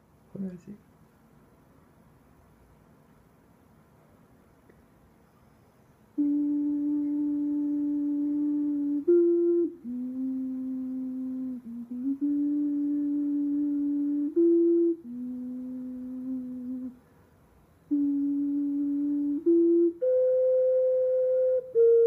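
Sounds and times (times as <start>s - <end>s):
ocarina playing: 6.2s - 17.0s, 17.9s - 22.0s.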